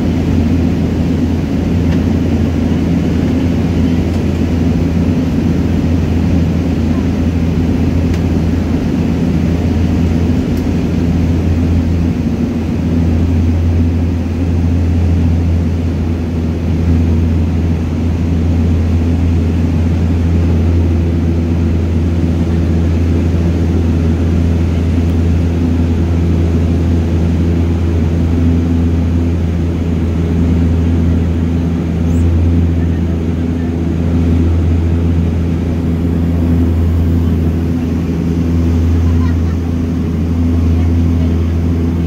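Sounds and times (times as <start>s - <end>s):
turboprop engines droning: 0.0s - 42.0s.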